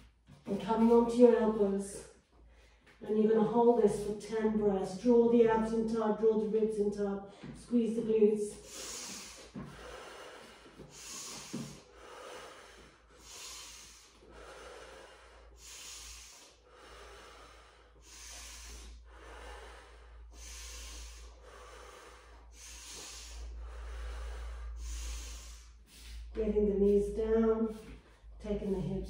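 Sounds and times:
woman breathing deeply: 8.5 - 26.4.

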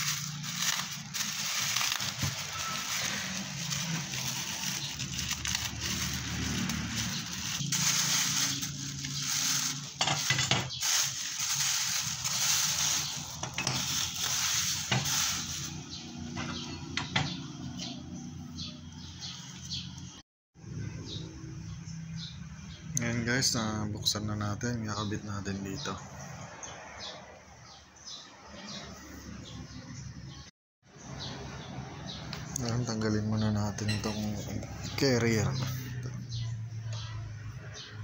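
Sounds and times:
plastic wrapping crinkling: 0.0 - 15.8
metal pieces clinking: 7.0 - 15.6.

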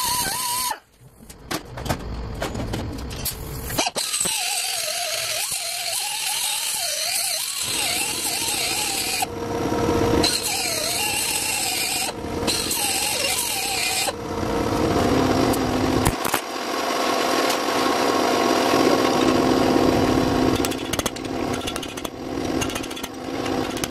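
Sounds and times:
angle grinder cutting steel: 0.0 - 0.8, 3.8 - 16.0, 18.4 - 23.9.

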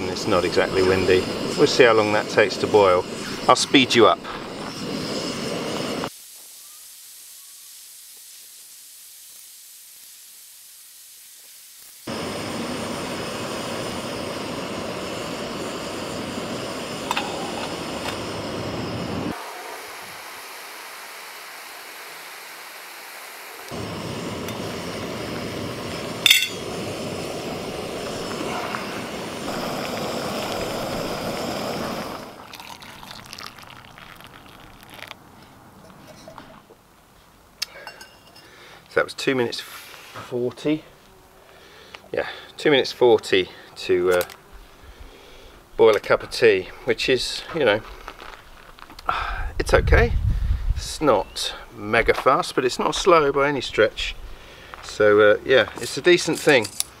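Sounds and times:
gas stove burner roaring: 0.0 - 6.1, 12.0 - 33.3
water boiling in pot: 0.0 - 36.6
sharp metallic clink: 26.2 - 26.7.

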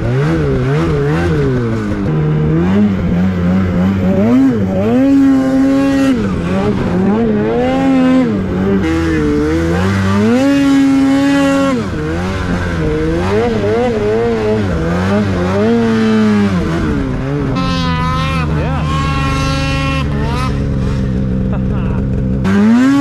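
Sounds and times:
snowmobile engine revving: 0.0 - 23.0.

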